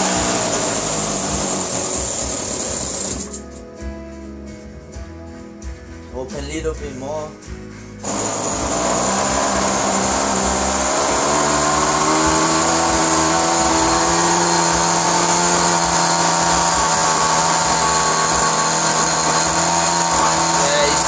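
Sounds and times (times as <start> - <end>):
model aircraft engine buzzing: 8.0 - 21.0.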